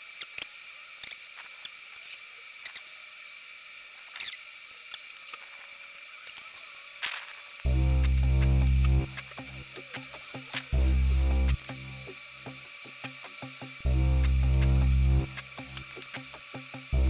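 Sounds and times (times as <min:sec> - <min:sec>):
small clicks: 0:00.1 - 0:02.9, 0:15.3 - 0:17.0
thin high whine: 0:07.6 - 0:17.0.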